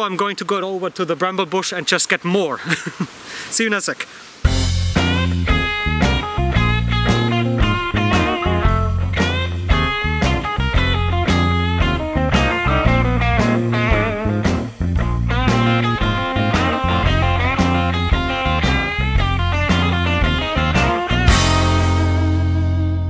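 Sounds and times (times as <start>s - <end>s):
rock music: 4.5s - 23.0s.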